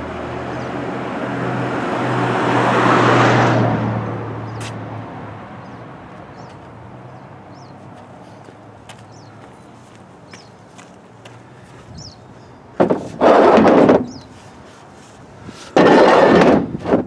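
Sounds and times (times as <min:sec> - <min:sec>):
car passing by: 0:00.0 - 0:09.7.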